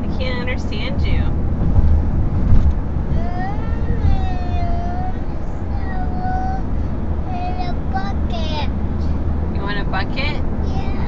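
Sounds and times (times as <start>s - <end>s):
car road rumble: 0.0s - 11.0s
small child singing: 3.2s - 6.6s, 7.3s - 8.7s.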